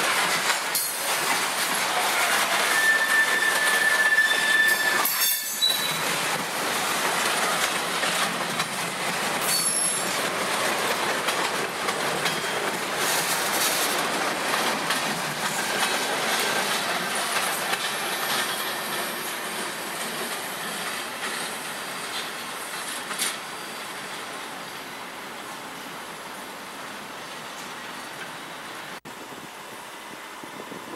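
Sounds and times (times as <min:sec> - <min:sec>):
freight train wheels rumbling: 0:00.0 - 0:30.9
high-pitched wheel squeals: 0:02.1 - 0:06.0.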